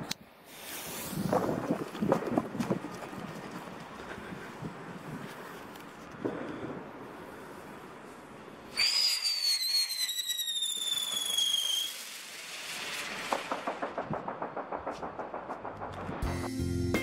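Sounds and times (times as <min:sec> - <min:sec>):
firework shrill whistle: 0:08.7 - 0:13.6.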